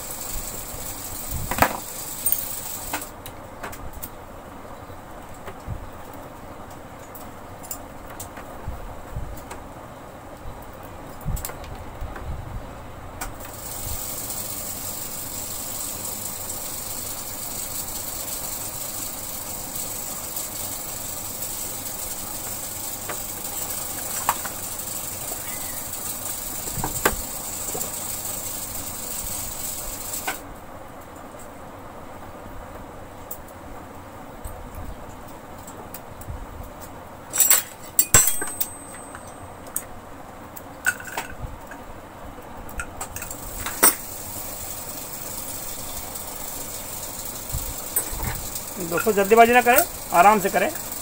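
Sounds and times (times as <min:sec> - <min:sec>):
steady high hiss: 0:00.0 - 0:03.4, 0:13.3 - 0:36.2, 0:41.8 - 0:51.0.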